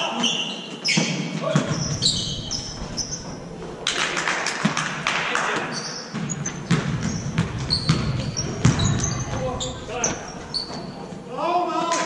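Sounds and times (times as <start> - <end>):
sneaker squeaks on gym floor: 0.1 - 3.4, 5.7 - 11.1
thuds of feet and ball: 6.2 - 11.0.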